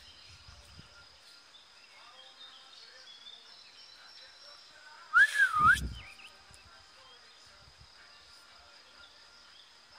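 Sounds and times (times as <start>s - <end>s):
faint birds: 0.0s - 9.9s
insects: 0.0s - 9.9s
rising and falling whistle: 5.2s - 6.0s.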